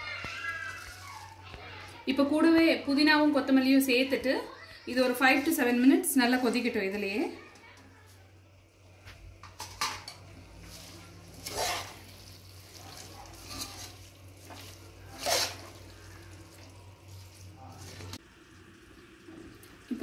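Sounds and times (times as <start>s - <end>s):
metal spoon stirring in pot: 9.5s - 18.2s.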